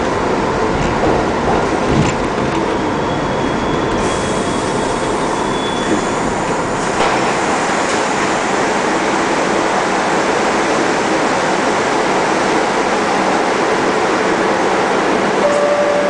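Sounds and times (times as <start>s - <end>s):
train wheels rumbling on rail: 0.0s - 16.0s
high wheel squeal: 2.7s - 6.4s.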